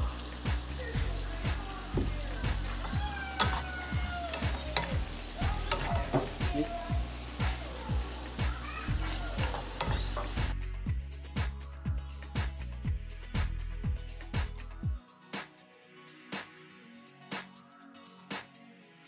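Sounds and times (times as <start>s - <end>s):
food sizzling in frying pan: 0.0s - 10.6s
background music beat: 0.0s - 19.0s
utensil scraping pan: 2.7s - 6.7s.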